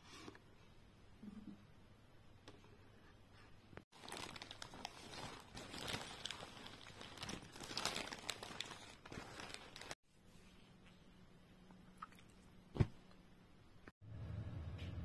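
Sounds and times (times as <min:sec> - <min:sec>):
nylon bag rustling: 0:03.9 - 0:10.0.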